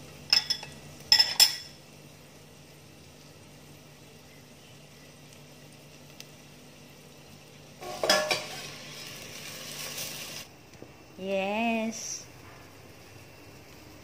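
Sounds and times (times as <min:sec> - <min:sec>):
low hum with faint hiss: 0:00.0 - 0:14.0
sizzling in a pot: 0:00.0 - 0:14.0
steel bowl clanking against pot: 0:07.8 - 0:08.5.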